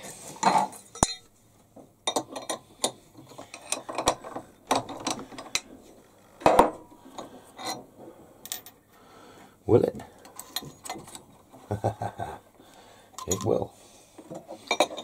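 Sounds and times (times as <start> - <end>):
metal tools clinking: 0.4 - 1.3, 13.2 - 13.6, 14.6 - 15.0.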